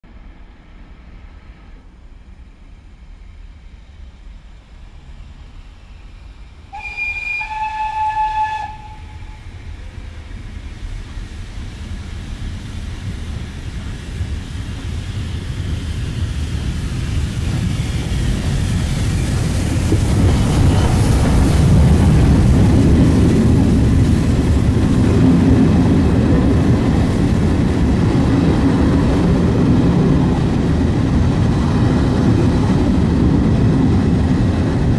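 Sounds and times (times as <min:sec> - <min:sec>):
train rumbling: 0:00.0 - 0:34.9
steam locomotive whistle: 0:06.7 - 0:09.6.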